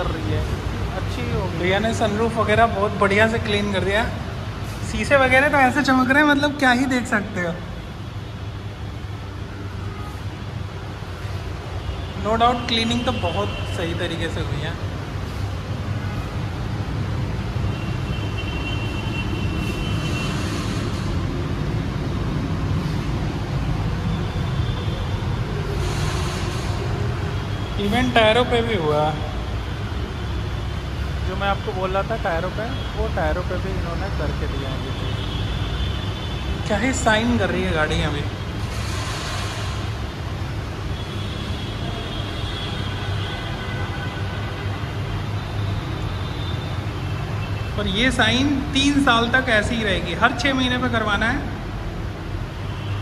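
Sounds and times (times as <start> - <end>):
hiss: 25.8 - 27.0.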